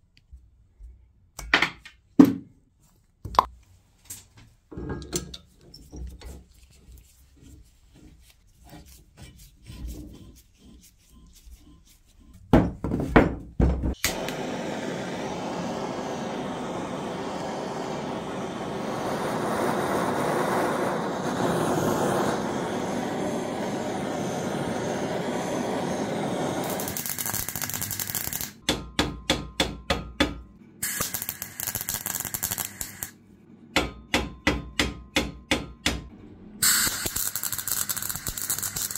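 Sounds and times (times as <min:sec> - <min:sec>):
long steady noise: 0:14.1 - 0:27.6.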